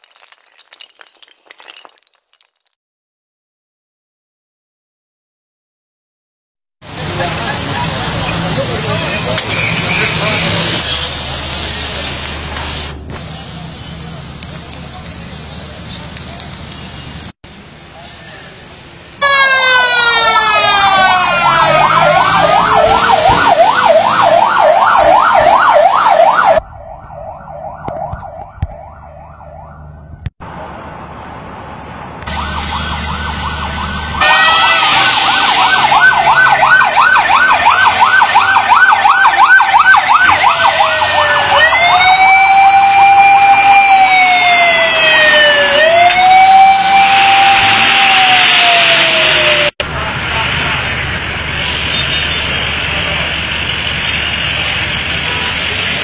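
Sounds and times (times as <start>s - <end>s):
emergency sirens yelping: 17.9s - 30.2s, 32.2s - 56.0s.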